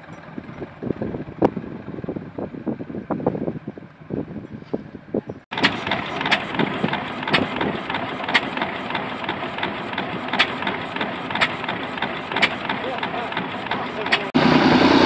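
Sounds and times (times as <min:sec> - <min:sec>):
stationary engine cracking and clattering: 0:05.5 - 0:15.0
tractor engine chugging: 0:05.5 - 0:15.0.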